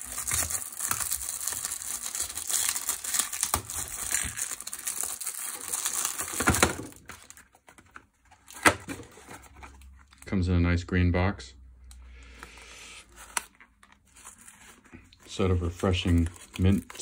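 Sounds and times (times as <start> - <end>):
plastic wrap crinkling: 0.0 - 7.8, 13.1 - 17.0.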